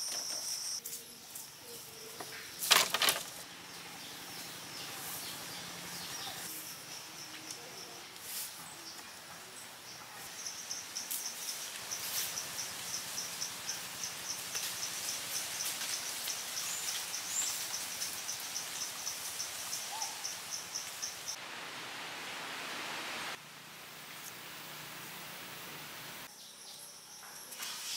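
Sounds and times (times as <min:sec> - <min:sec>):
insect chirping: 0:00.0 - 0:04.8, 0:05.5 - 0:08.1, 0:10.2 - 0:21.7
forest background hiss: 0:00.0 - 0:27.9.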